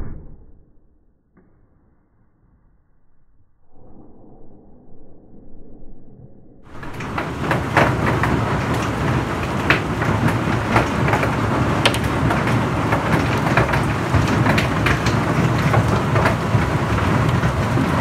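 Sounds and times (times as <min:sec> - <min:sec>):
hailstones clattering: 0:06.7 - 0:18.0.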